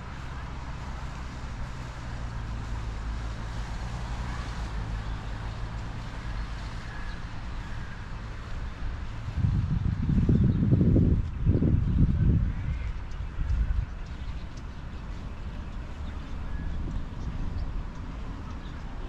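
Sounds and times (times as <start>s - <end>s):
traffic hum: 0.0s - 19.0s.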